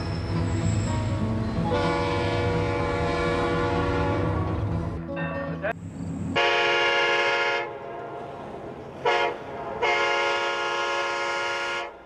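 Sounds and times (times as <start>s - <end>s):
train horn blasts: 1.6s - 4.7s, 6.4s - 7.9s, 9.0s - 12.0s.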